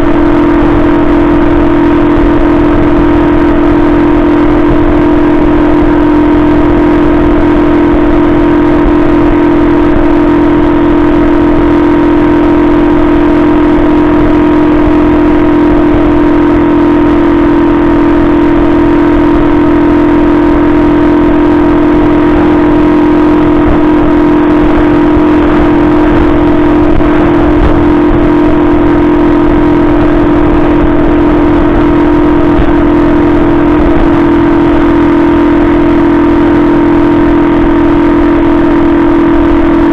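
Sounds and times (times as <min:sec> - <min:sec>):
moped engine running: 0:00.0 - 0:39.9.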